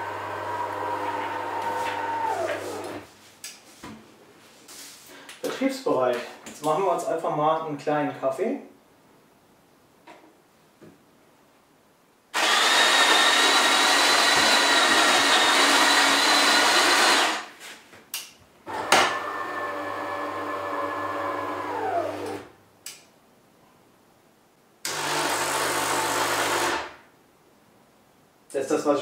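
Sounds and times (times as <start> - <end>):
brew unit motor running: 0.0 - 3.0, 12.4 - 17.4, 18.7 - 22.5
water pump humming: 0.0 - 3.0
coffee grinder grinding beans: 12.4 - 17.5.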